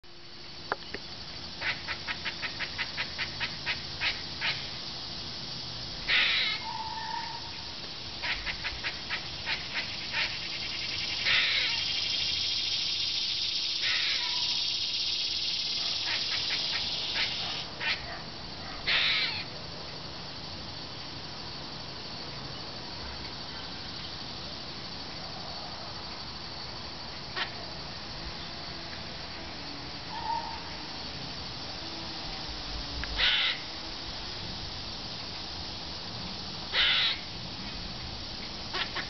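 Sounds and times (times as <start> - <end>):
squirrel hoarse rasping call: 6.1 - 7.5, 11.2 - 11.9, 13.8 - 14.6, 15.9 - 18.0, 18.9 - 19.4, 33.2 - 33.6, 36.7 - 37.2.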